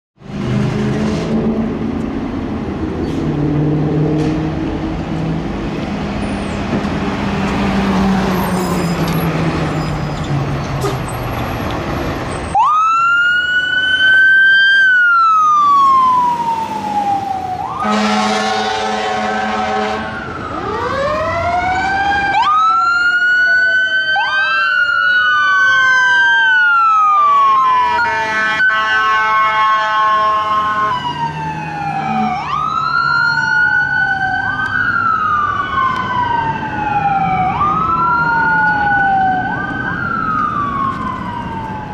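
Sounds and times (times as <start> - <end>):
diesel engines running: 0.2 - 41.9
sirens wailing: 0.3 - 41.9
horn blasts: 17.8 - 20.2, 28.0 - 30.9.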